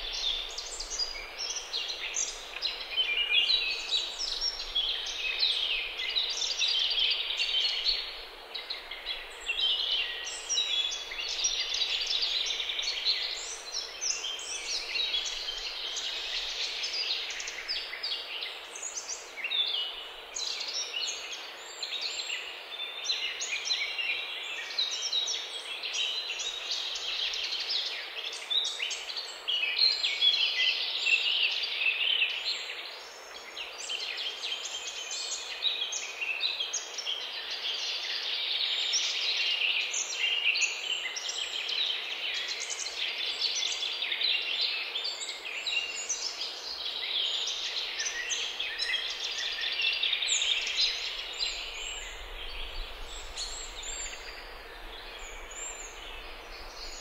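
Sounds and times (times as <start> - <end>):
birds chirping and trilling: 45.5 - 57.0.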